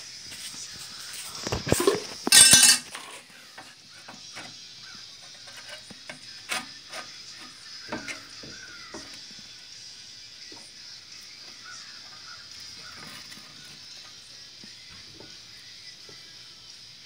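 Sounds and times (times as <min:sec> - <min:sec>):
metal clattering: 0:01.7 - 0:03.2, 0:05.5 - 0:09.2
light metal clinks and taps: 0:01.8 - 0:03.0.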